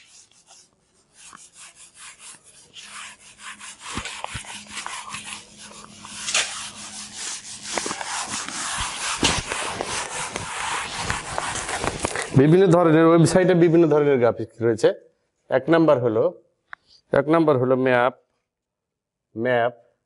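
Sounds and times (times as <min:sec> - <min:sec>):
eraser wiping a whiteboard: 0:00.0 - 0:12.5.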